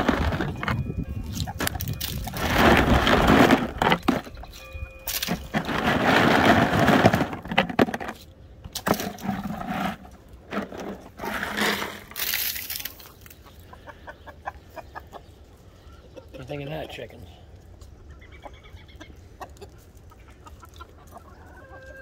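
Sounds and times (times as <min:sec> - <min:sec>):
hens clucking: 0:00.0 - 0:07.6, 0:12.7 - 0:22.0
pretzels crunching: 0:10.6 - 0:13.3.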